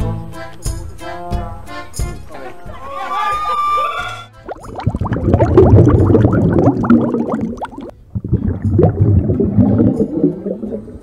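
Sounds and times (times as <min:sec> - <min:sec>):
water splashing and gurgling: 0:04.4 - 0:11.0.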